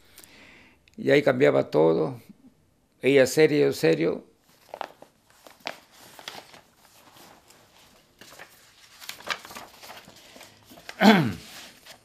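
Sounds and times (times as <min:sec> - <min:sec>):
paper rustling and crinkling: 0:04.4 - 0:12.0.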